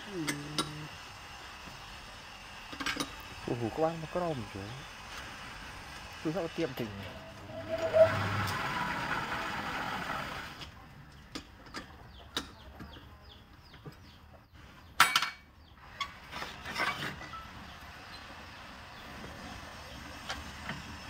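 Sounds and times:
wood lathe turning: 6.2s - 10.6s.

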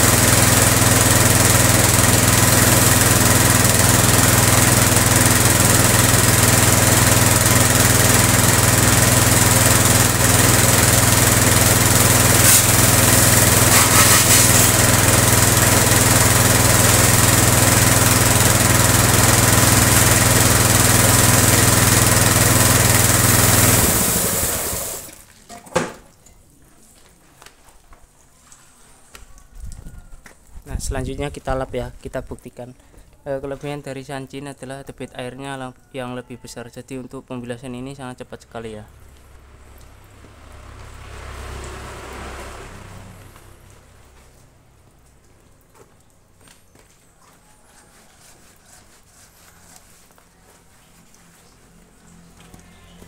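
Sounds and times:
pressure washer pump humming: 0.0s - 25.3s
water jet hissing: 7.8s - 25.2s.

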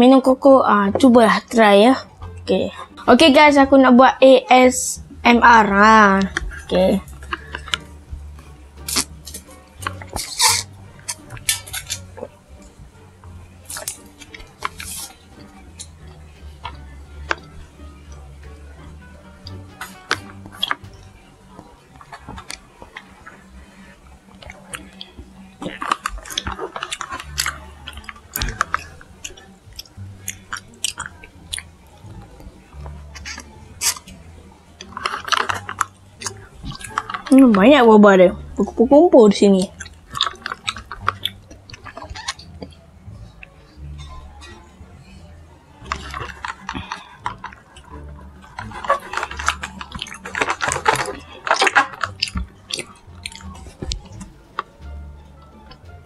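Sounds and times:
wet chewing clicks and smacks: 6.2s - 37.7s, 39.5s - 56.0s
slurping through a straw: 45.8s - 54.3s.

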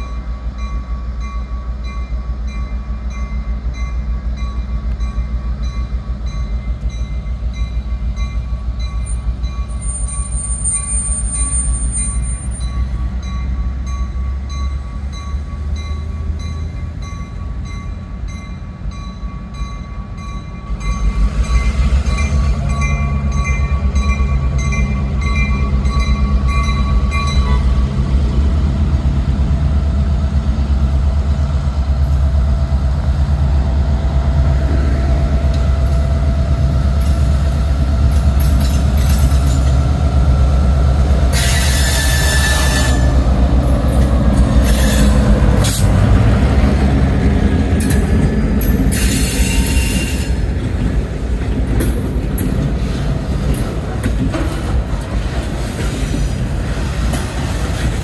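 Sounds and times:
diesel locomotive engine rumbling: 0.0s - 58.0s.

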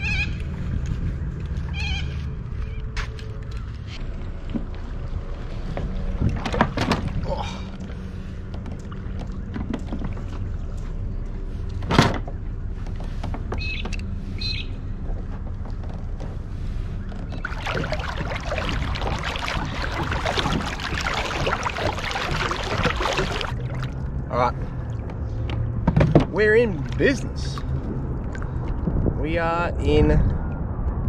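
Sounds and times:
boat motor humming: 0.0s - 29.2s
water rushing past: 17.3s - 24.2s.

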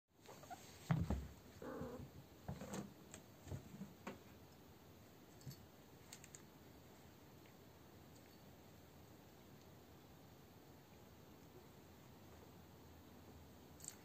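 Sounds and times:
cats rustling and scraping: 0.2s - 4.4s
soft thumps: 0.8s - 2.8s.

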